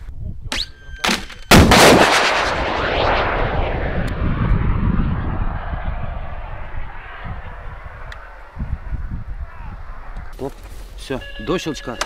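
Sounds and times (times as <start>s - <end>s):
missile launch blast: 1.5s - 8.4s
missile motor rushing away: 1.5s - 8.6s.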